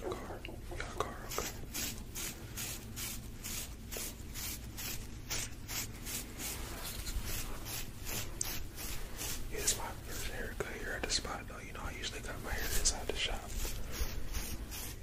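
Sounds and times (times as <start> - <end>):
hair brush scratching microphone: 1.1 - 11.2, 12.0 - 15.0.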